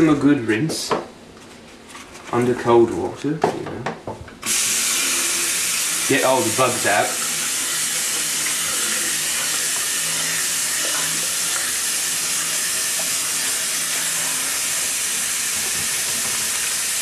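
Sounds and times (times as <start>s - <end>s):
faucet water running: 4.4s - 17.0s.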